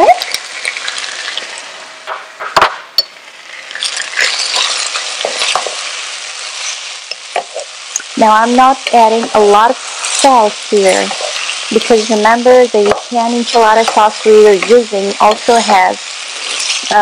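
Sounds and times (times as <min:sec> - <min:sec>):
food sizzling in hot oil: 0:00.0 - 0:02.0, 0:02.9 - 0:17.0
sharp knock: 0:02.1 - 0:02.9
wooden spatula scraping pot: 0:10.2 - 0:12.0.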